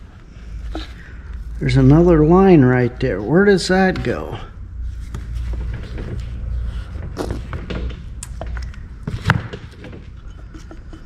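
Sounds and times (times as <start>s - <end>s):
tools and parts clicking and knocking: 7.5s - 11.0s.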